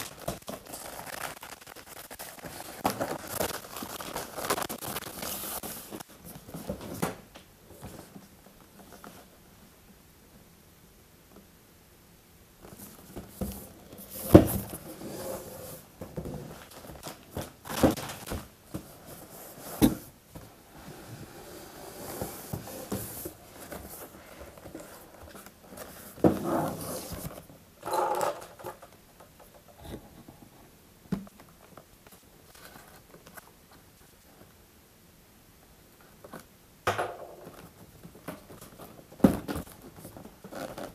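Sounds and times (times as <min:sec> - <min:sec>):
cardboard rustling and scraping: 0:00.0 - 0:07.1, 0:12.6 - 0:28.2, 0:37.4 - 0:40.9.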